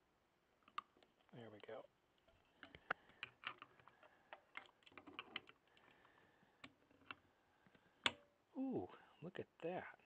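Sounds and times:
metal parts clicking and tapping: 2.6s - 5.9s.

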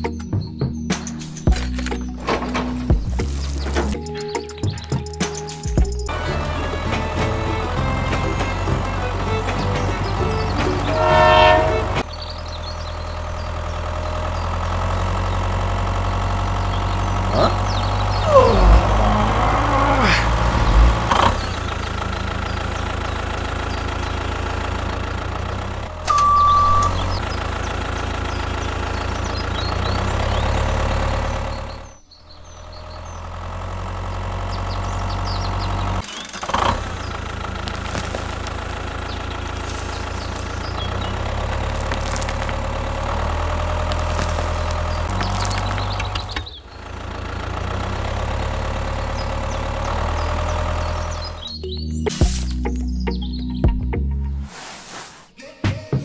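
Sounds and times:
tractor engine idling: 0.8s - 55.2s
single beep: 26.0s - 27.1s.

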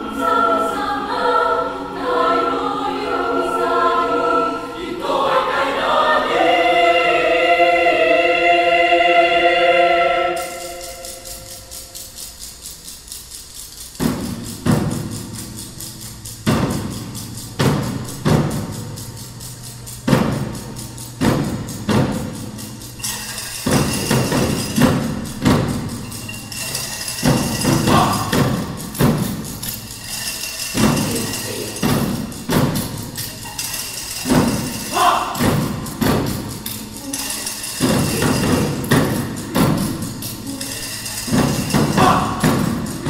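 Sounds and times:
ringing percussion hits: 9.8s - 43.0s
high tambourine rattle: 10.2s - 43.0s.

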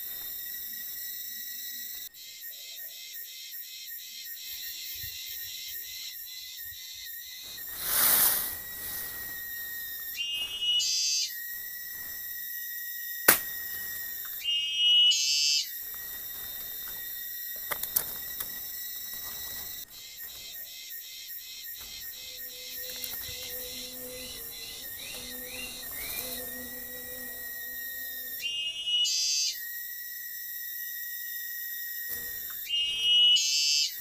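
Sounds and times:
high insect calls: 0.0s - 34.0s
insect chorus trilling: 0.0s - 34.0s
sharp click: 13.3s - 13.6s.

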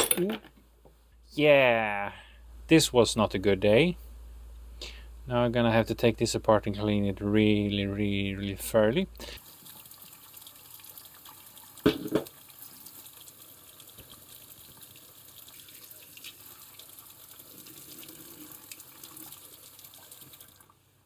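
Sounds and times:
tap water running into sink: 9.4s - 20.8s.

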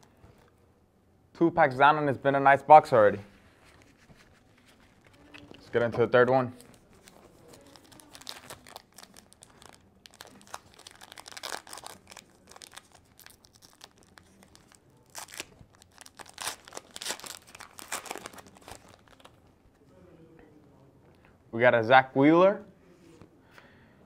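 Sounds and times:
wrapper crinkling and tearing: 3.8s - 5.8s, 6.6s - 19.5s.

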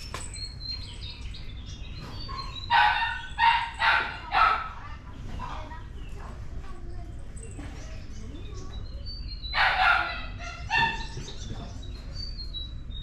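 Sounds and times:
birds chirping faintly: 0.0s - 13.0s
dog barking: 2.3s - 4.8s, 9.5s - 11.2s
dog yelping: 2.3s - 4.8s, 9.5s - 11.3s.

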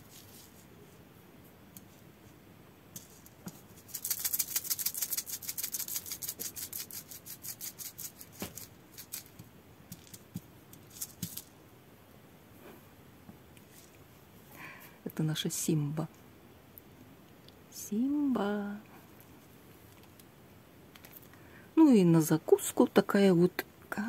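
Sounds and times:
packaging rattling and crinkling: 8.0s - 11.5s.

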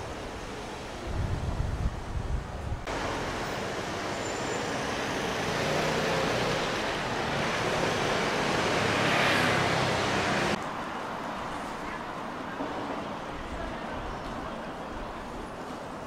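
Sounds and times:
street traffic: 0.0s - 16.0s
vehicle passing: 4.6s - 10.6s.

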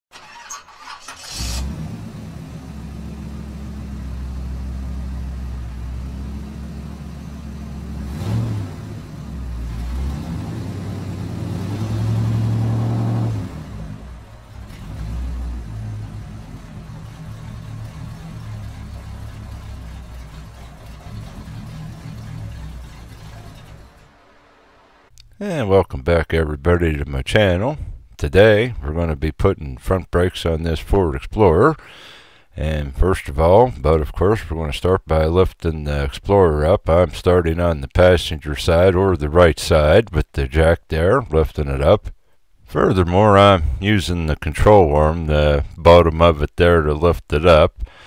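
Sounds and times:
car engine starting and revving: 0.0s - 25.1s.

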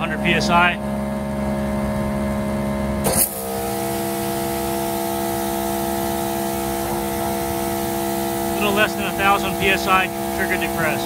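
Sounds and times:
pressure washer pump hum: 0.0s - 11.0s
trigger burst: 3.0s - 8.9s.

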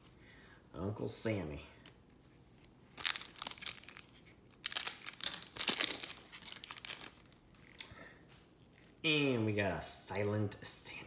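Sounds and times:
card pack wrapper crinkling: 2.5s - 7.9s.

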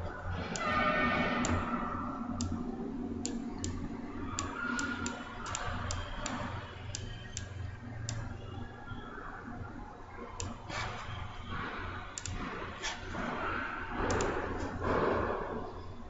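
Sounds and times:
pointing device clicks: 1.4s - 8.9s, 14.0s - 14.4s.

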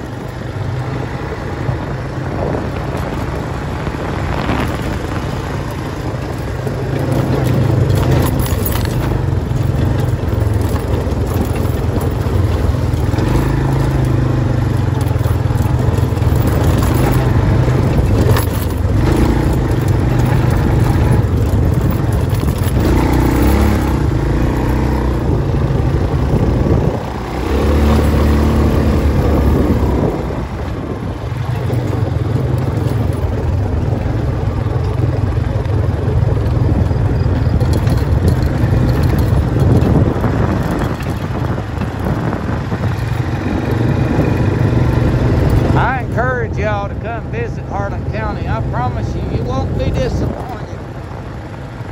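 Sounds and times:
tyres on gravel: 0.0s - 51.9s
vehicle engine hum: 0.0s - 51.9s.

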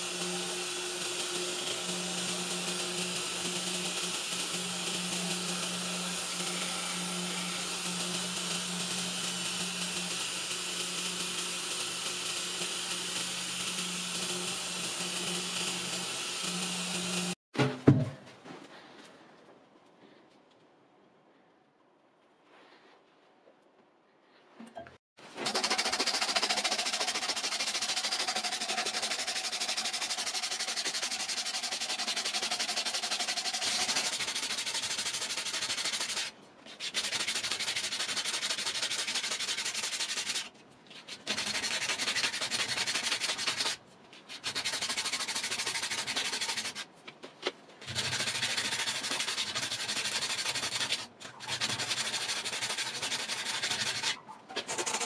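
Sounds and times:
sandpaper rasping on wood: 25.4s - 40.5s, 41.1s - 46.9s, 47.8s - 55.0s.

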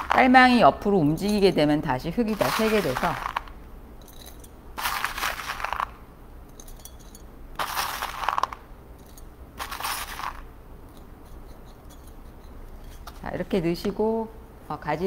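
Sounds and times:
stones rattling into flowerpot: 2.3s - 6.0s, 7.6s - 8.6s, 9.6s - 10.5s
single stones clicking: 2.4s - 3.6s, 4.8s - 6.0s, 7.6s - 8.6s.

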